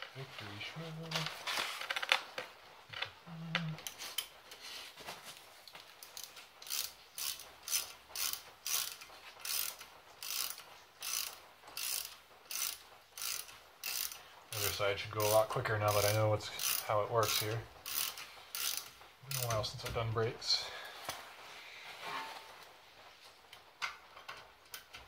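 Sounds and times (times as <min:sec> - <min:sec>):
hand ratchet clicking: 0:06.0 - 0:19.8.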